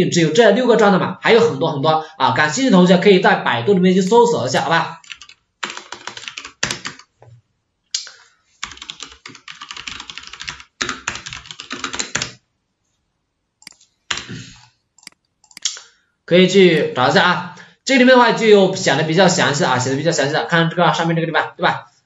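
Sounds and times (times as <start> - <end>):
computer keyboard typing: 5.0 - 7.1, 8.6 - 12.4, 13.6 - 15.7.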